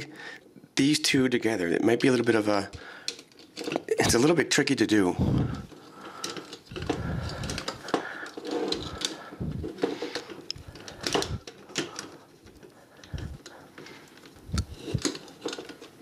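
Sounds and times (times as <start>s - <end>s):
plastic toy parts clicking: 3.1s - 4.2s, 5.7s - 16.0s.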